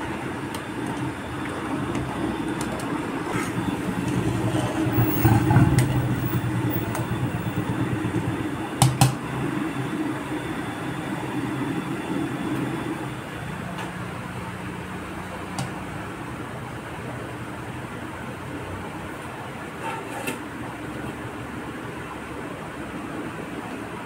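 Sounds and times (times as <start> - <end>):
low rumble of pot on stove: 0.0 - 9.2.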